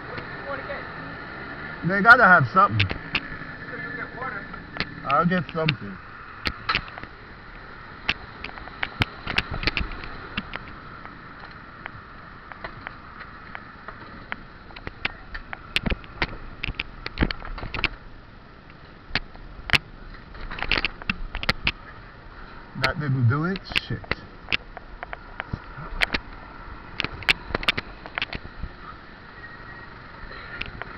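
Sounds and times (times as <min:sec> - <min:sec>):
handling clicks and knocks: 0:02.7 - 0:03.4, 0:08.0 - 0:18.0, 0:18.8 - 0:21.8, 0:22.8 - 0:28.6.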